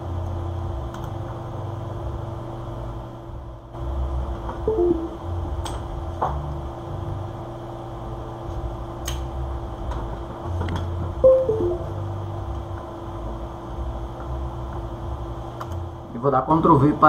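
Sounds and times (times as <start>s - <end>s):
steady hum: 4.3s - 5.7s, 11.2s - 13.4s
two-note falling computer chime: 4.7s - 5.2s, 11.3s - 12.1s.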